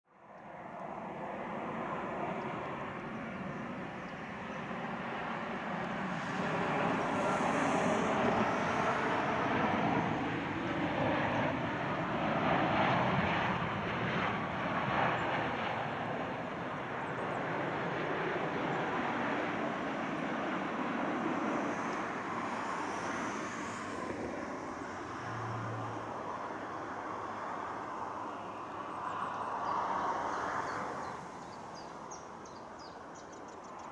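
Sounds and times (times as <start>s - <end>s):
jet airliner engines rushing: 0.3s - 33.9s.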